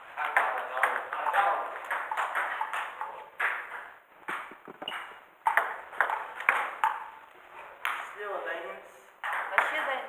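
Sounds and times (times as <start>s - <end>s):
table tennis balls clicking: 0.2s - 8.1s, 9.2s - 10.0s.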